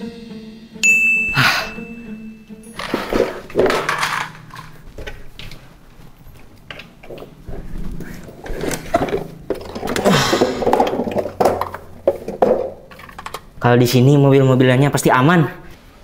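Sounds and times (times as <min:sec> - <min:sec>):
toys scraping on cabinet floor: 0:02.8 - 0:04.7
toys knocking and clicking: 0:08.6 - 0:13.5.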